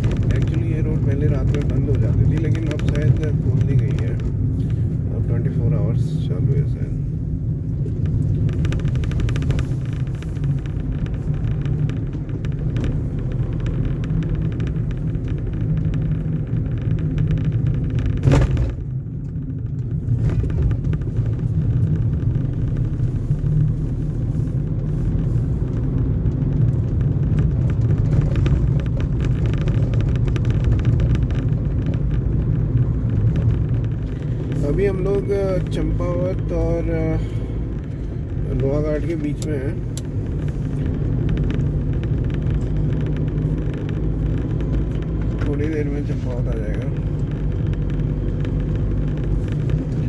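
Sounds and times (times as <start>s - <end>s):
car cabin engine and tyre rumble: 0.0s - 50.0s
sharp thump: 18.2s - 18.8s.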